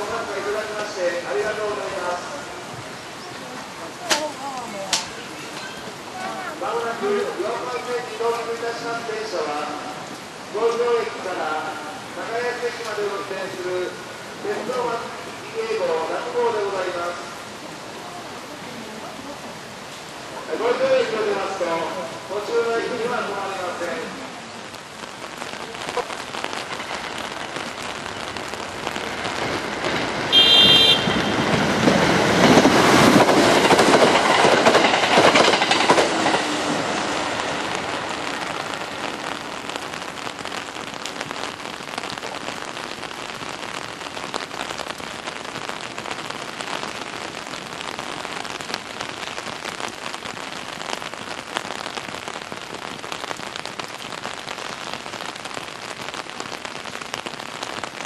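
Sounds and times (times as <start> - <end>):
steady rain: 0.0 - 58.0
train running past: 28.8 - 39.4
short high train horn: 30.3 - 31.4.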